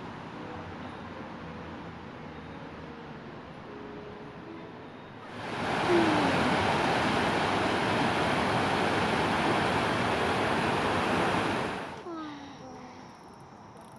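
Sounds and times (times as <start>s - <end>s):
water rushing over stone weir: 5.3s - 12.0s.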